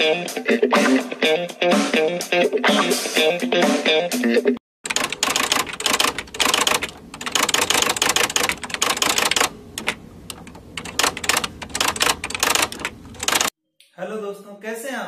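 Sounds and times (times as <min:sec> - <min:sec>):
typewriter keystrokes: 0:04.9 - 0:13.5.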